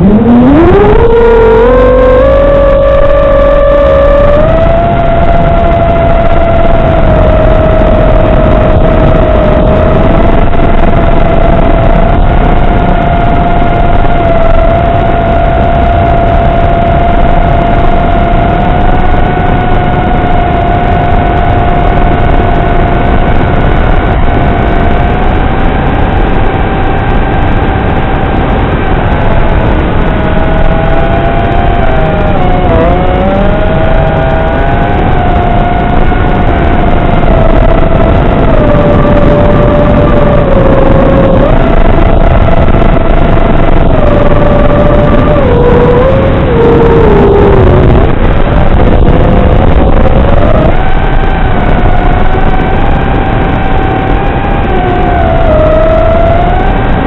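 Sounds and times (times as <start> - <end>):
drone motors whining: 0.0 - 57.0.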